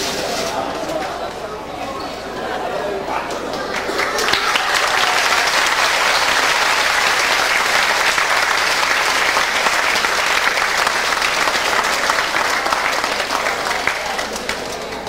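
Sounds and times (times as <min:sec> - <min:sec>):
audience applause: 0:03.2 - 0:15.0.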